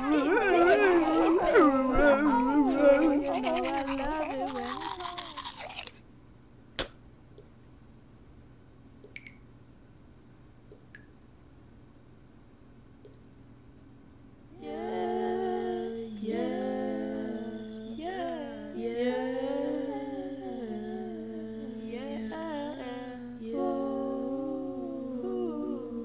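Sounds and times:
person humming a wavering melody: 0.0 - 5.9, 14.6 - 26.0
small click: 6.8 - 7.6, 9.0 - 9.4, 13.0 - 13.3.

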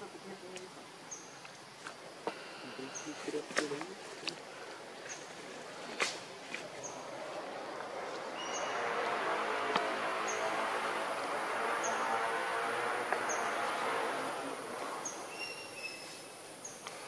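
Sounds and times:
distant motor passing: 6.7 - 16.8.

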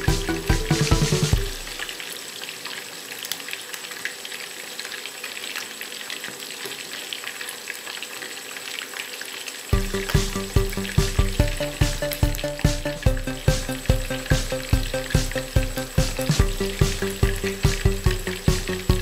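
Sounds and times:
background music: 0.0 - 2.1, 9.8 - 19.0
chicken sizzling in hot oil: 0.0 - 19.0.

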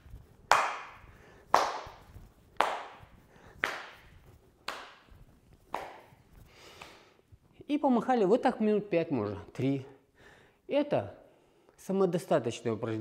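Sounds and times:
hand claps: 0.5 - 7.0.

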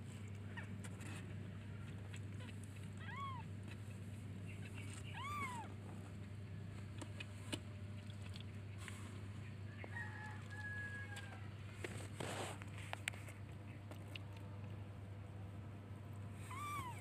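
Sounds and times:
kitten mewing: 2.1 - 3.6, 5.0 - 5.8, 16.4 - 17.0.

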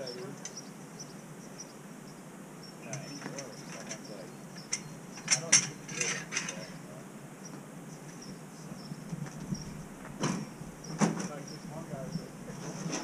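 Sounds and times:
metal clanks and knocks: 2.9 - 6.8, 9.1 - 11.4.

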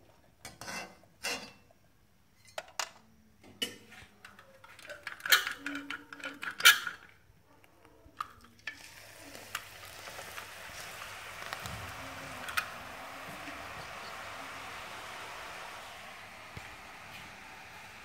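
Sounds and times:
dough sizzling in hot oil: 8.6 - 18.0.

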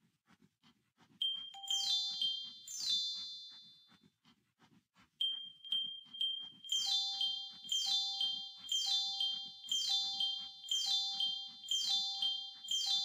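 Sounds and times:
steady high beep: 1.2 - 3.9, 5.2 - 13.0
falling chime runs: 1.5 - 3.5.

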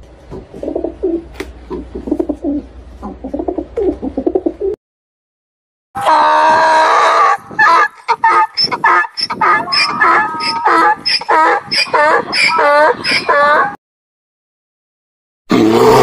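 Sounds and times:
pigeons cooing: 0.5 - 4.8
donkey braying: 6.0 - 13.8.

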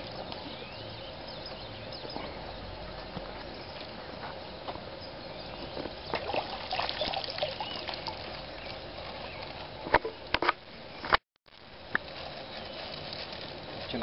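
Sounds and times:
fish splashing out of water: 6.1 - 8.5.

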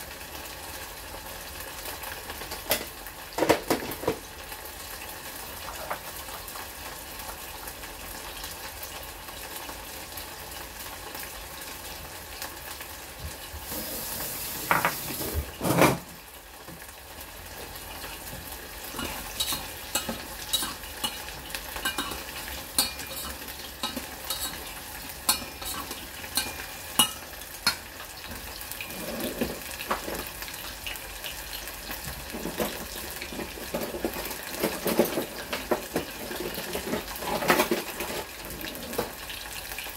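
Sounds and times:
meat sizzling in a pan: 0.0 - 39.9
clanks against pot: 18.9 - 28.4.

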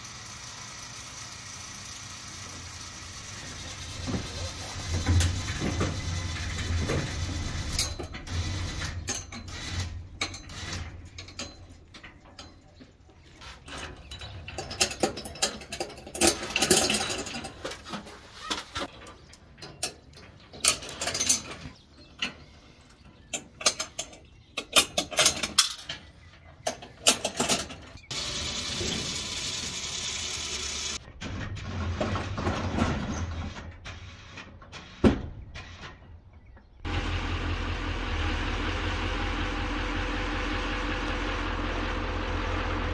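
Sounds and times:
metal chains rattling: 4.4 - 12.8, 13.6 - 17.9, 18.9 - 22.4, 23.4 - 26.0, 27.0 - 28.0
metal hooks clanking: 18.8 - 22.4.

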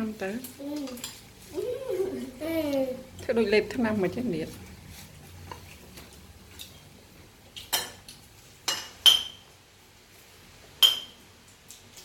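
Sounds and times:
spoon clinking against bowl: 8.7 - 9.4, 10.8 - 11.2.

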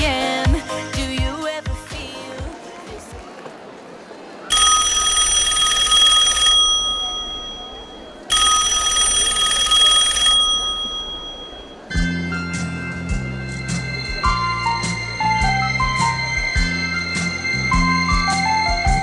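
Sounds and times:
recorded music: 0.0 - 3.3, 11.9 - 19.0
telephone ringing: 4.5 - 12.0.

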